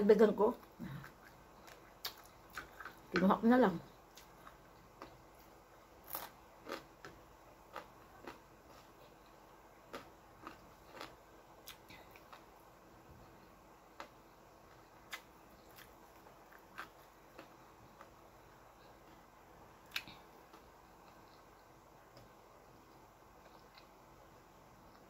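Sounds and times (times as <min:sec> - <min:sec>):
chewing crispy fried fish: 0:06.0 - 0:12.6.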